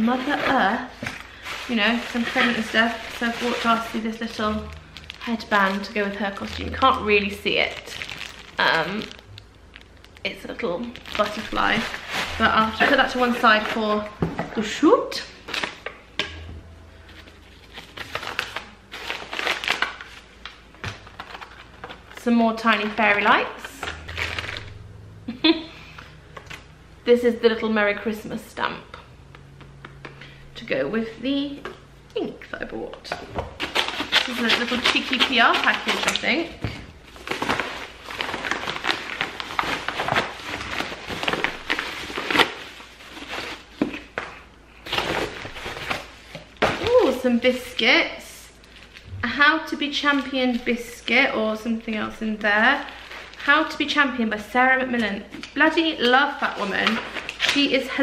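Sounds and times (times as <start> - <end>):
packaging rustling and crinkling: 0.0 - 14.2, 17.0 - 24.9, 33.5 - 47.2, 48.6 - 49.1, 52.4 - 53.4, 56.3 - 58.0.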